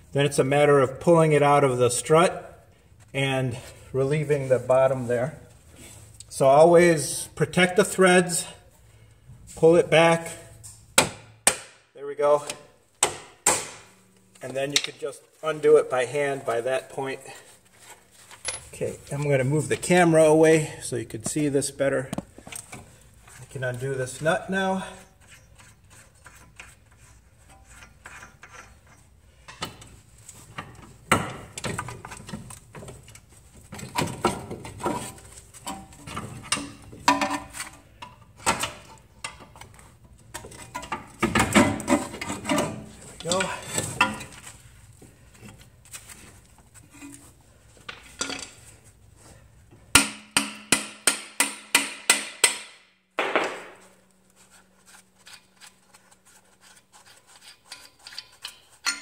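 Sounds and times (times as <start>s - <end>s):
metal tools clinking and knocking: 18.3s - 18.8s, 47.9s - 48.7s, 57.7s - 59.0s.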